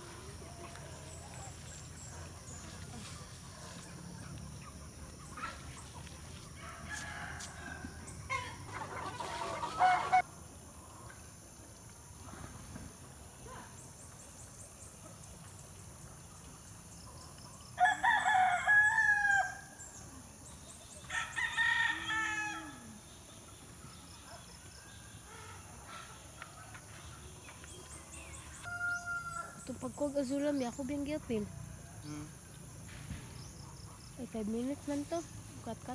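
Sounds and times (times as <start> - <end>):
rooster crowing: 6.6 - 10.2, 17.8 - 19.7, 21.1 - 22.8, 28.7 - 29.6.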